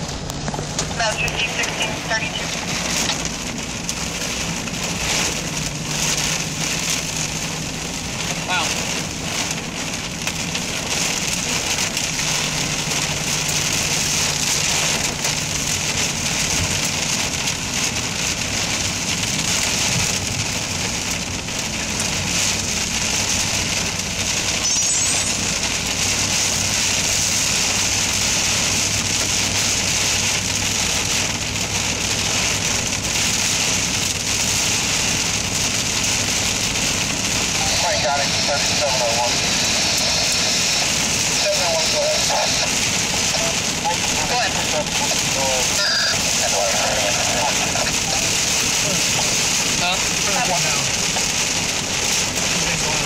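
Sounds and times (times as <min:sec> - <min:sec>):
car engine and tyres hum: 0:00.0 - 0:53.0
heavy rain on car windshield: 0:00.0 - 0:53.0.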